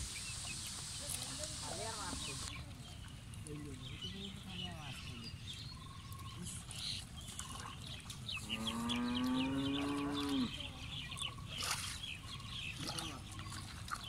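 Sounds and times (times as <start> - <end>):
cow mooing: 8.4 - 10.5.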